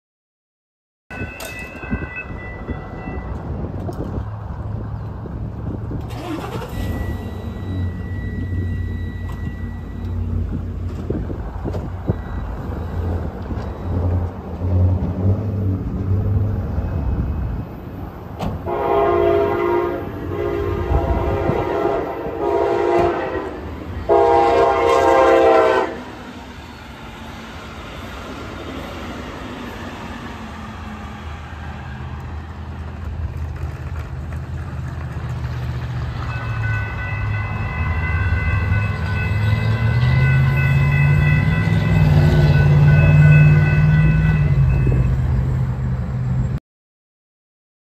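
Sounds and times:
crossing warning bells ringing: 1.1 - 4.2, 6.1 - 15.2, 18.6 - 31.0, 35.7 - 45.9
train rumble: 1.1 - 46.6
train horn blasts: 18.6 - 26.1.

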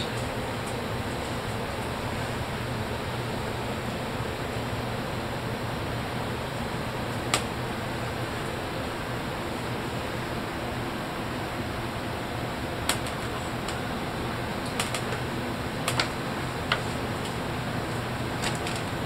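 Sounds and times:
cat claws clicking on freezer: 12.8 - 13.8, 14.6 - 17.4.

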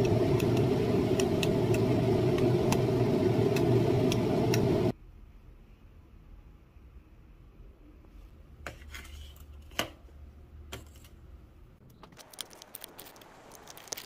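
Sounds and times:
steady mechanical rumble: 0.0 - 5.0.

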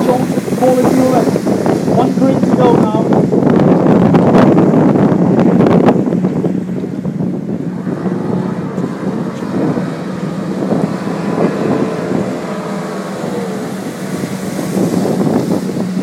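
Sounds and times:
boat engines droning: 0.0 - 16.0
wind buffeting microphone: 0.0 - 16.0.

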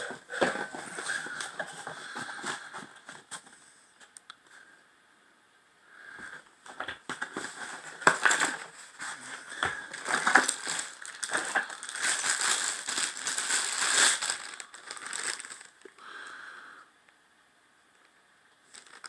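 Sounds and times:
packaging crinkling and rustling: 7.0 - 16.0, 18.6 - 19.0.

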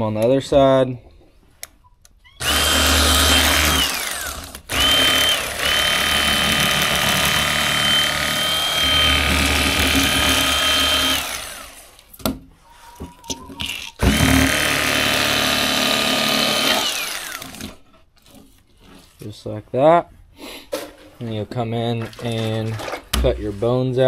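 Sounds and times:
electric fillet knife whining: 2.4 - 12.1, 13.9 - 17.8.

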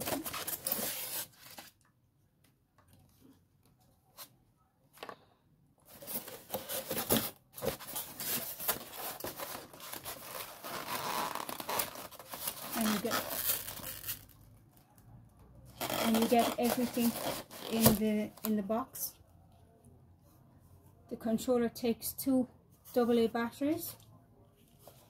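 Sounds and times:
foam packing rustling: 5.9 - 14.2.

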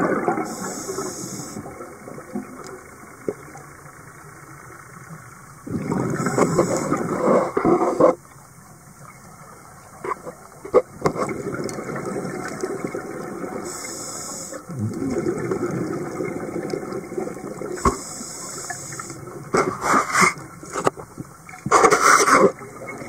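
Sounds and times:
gurgle of exhaled bubbles: 0.0 - 2.7, 5.6 - 8.2, 10.8 - 13.8, 14.6 - 18.0
regulator inhalation hiss: 0.5 - 1.6, 6.2 - 7.2, 13.6 - 14.7, 17.8 - 19.2.

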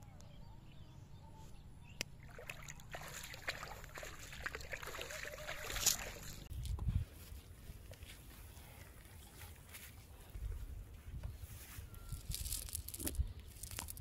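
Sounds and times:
water splashing and dripping: 2.1 - 6.5.

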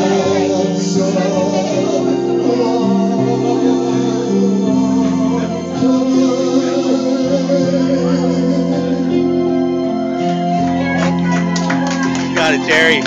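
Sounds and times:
man singing into microphone: 0.0 - 10.1
karaoke backing track chords: 0.0 - 13.0.

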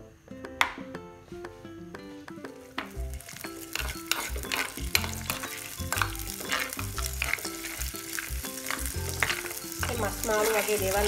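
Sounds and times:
garlic and ginger sizzling in oil: 2.6 - 11.0.

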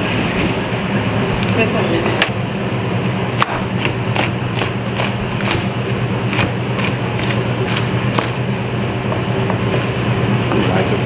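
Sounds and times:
steady low hum: 0.0 - 11.0
knife chopping on plastic board: 3.4 - 8.4.

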